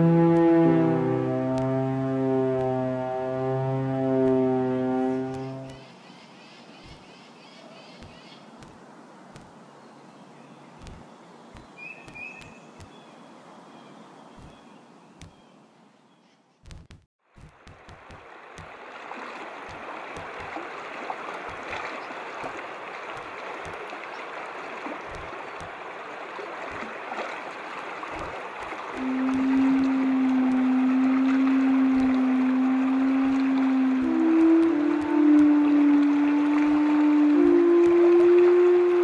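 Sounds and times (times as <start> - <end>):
low held tone: 0.0 - 5.8, 29.0 - 39.0
stream trickling and gurgling: 0.0 - 15.4, 17.2 - 39.0.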